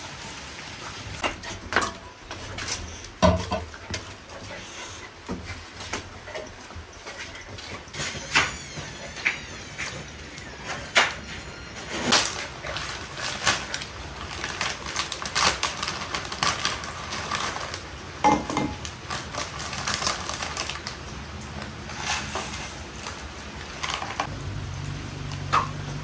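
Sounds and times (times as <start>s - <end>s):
packets tearing and crinkling: 7.9s - 18.2s, 18.8s - 21.0s, 21.9s - 24.3s.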